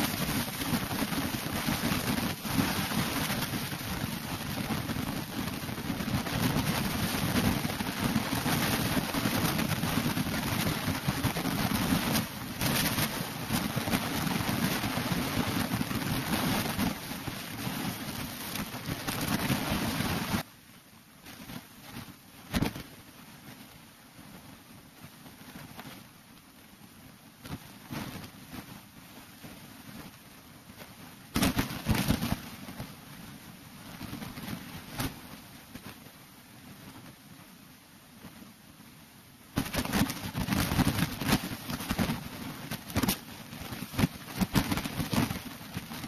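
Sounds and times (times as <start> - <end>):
wind rumbling on microphone: 0.0 - 20.5, 21.2 - 38.9, 39.5 - 46.0.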